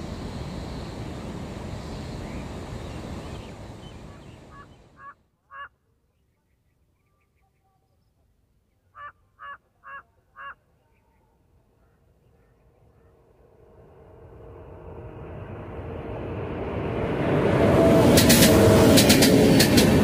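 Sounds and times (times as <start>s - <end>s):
approaching train rumble: 0.0s - 5.0s, 11.6s - 20.0s
bird calls: 2.2s - 13.2s.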